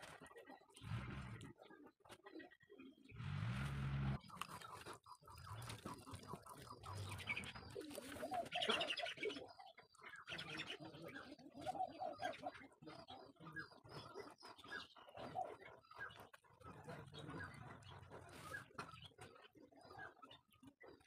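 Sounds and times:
birds calling: 0:00.0 - 0:21.0
dove cooing: 0:04.2 - 0:20.8.

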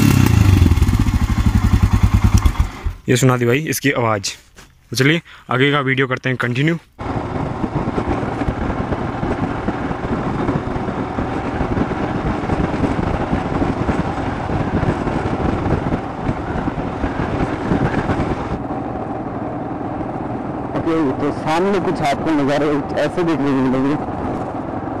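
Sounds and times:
motorcycle engine running: 0:00.0 - 0:03.1, 0:07.0 - 0:25.0
wind noise on microphone: 0:07.0 - 0:21.0, 0:21.6 - 0:25.0.

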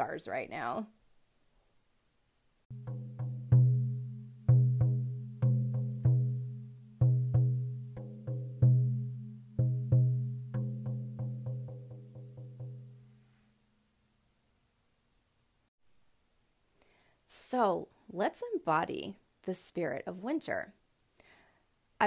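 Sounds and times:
low pitched drum strokes: 0:02.7 - 0:13.2.

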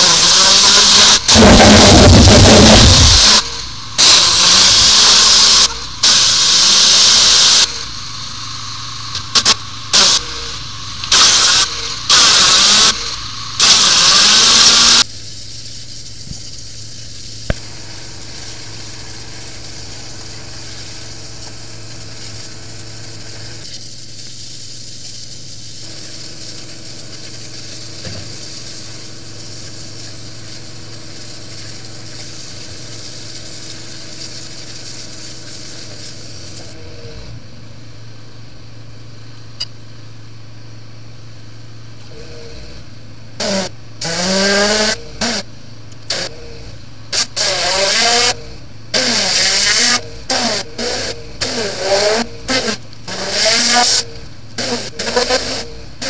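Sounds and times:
water jet rushing bursts: 0:00.0 - 0:15.0
engine running steadily: 0:00.0 - 0:56.0.

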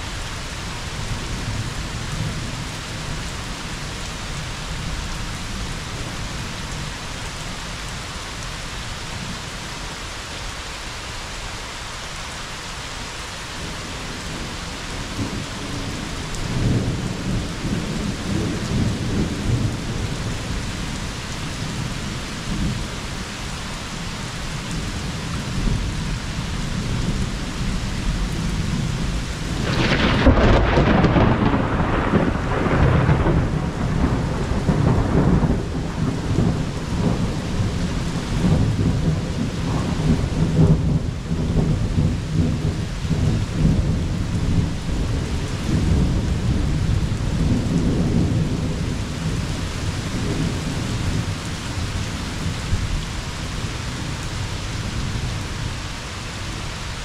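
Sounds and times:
steady rain hissing: 0:00.0 - 0:57.0
thunder rumbling: 0:26.8 - 0:54.2
thunder clap: 0:29.5 - 0:44.7.

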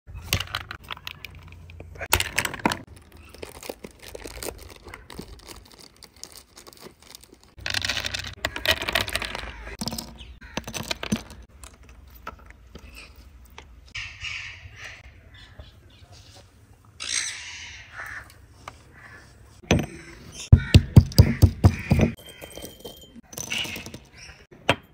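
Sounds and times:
almonds dropping into stone mortar: 0:07.1 - 0:11.8, 0:20.5 - 0:24.2
birds calling: 0:08.1 - 0:11.5, 0:12.7 - 0:24.5
stone pestle pounding: 0:20.5 - 0:22.2.

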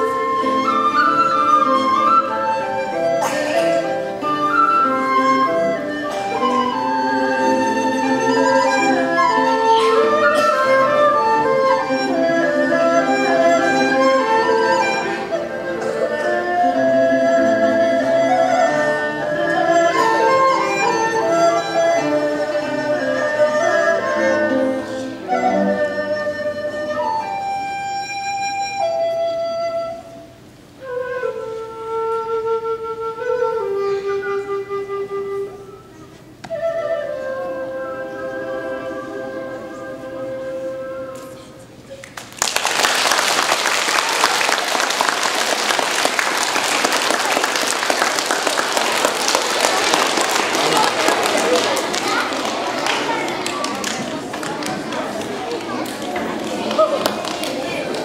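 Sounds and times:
bamboo flute playing: 0:00.0 - 0:41.7
audience clapping: 0:42.0 - 0:58.0.

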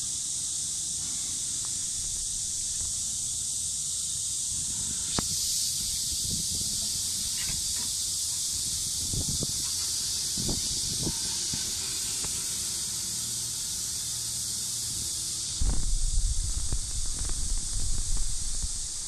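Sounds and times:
high-pitched hiss: 0:00.0 - 0:19.0
low rumble: 0:15.6 - 0:19.0.

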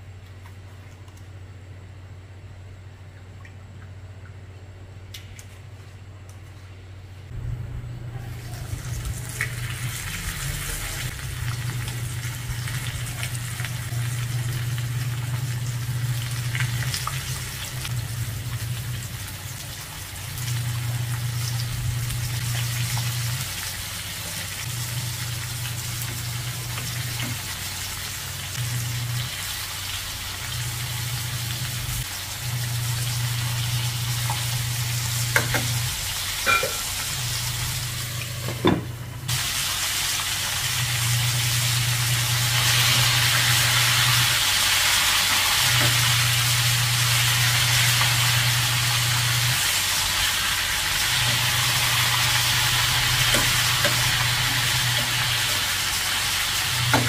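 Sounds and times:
low hum: 0:00.0 - 0:23.6
chicken sizzling in hot oil: 0:08.4 - 0:38.5, 0:39.3 - 0:57.0.

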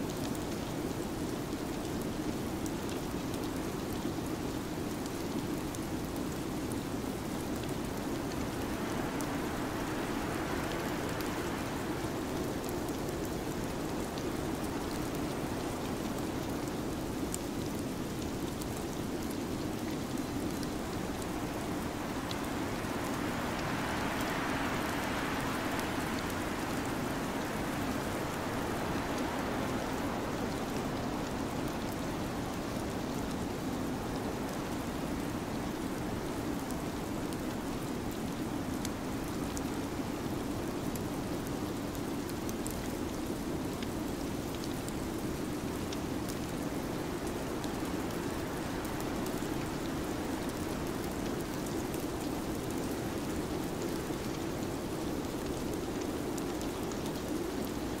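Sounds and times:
storm wind hiss: 0:19.2 - 0:40.4.

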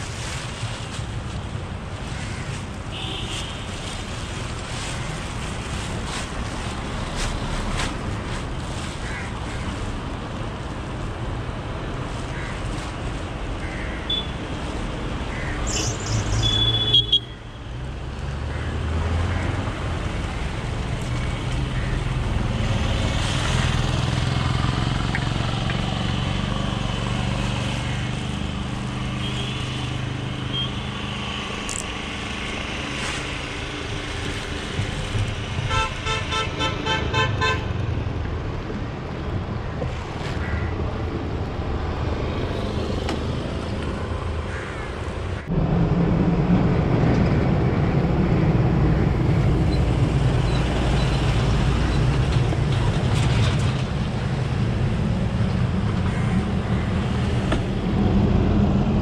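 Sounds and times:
vehicle engines running: 0:00.0 - 0:16.6, 0:17.8 - 0:59.0.

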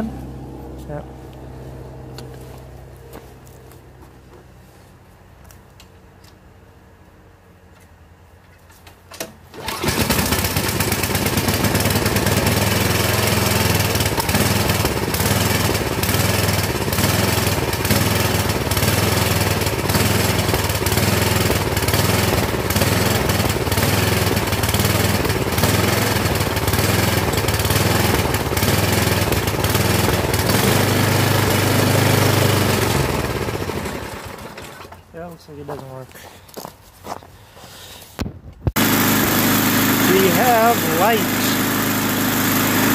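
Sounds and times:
snowblower engine starting and running: 0:00.0 - 0:04.4, 0:09.1 - 0:35.4, 0:38.7 - 0:42.9.

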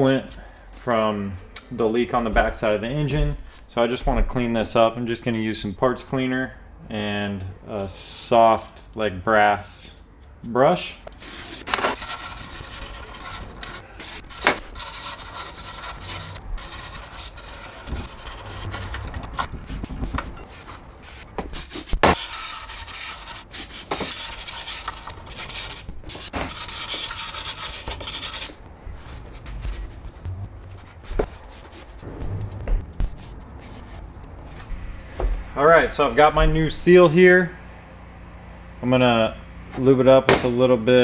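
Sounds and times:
brush scrubbing metal: 0:11.2 - 0:32.1.

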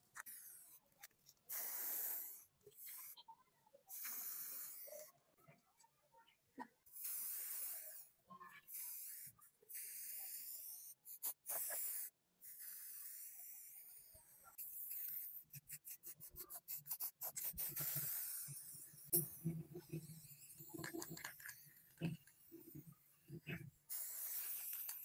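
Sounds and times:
spray paint can hissing: 0:01.5 - 0:02.4, 0:03.9 - 0:04.9, 0:07.0 - 0:07.9, 0:08.7 - 0:13.7, 0:14.6 - 0:19.3, 0:23.9 - 0:25.0.

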